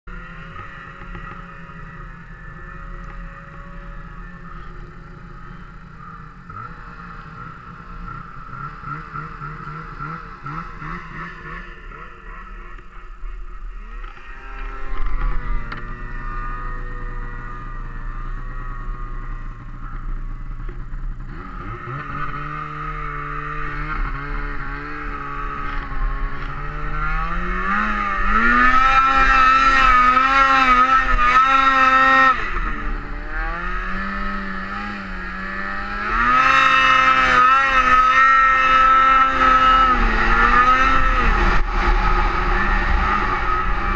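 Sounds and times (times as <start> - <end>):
snowmobile engine revving: 0.1 - 43.9.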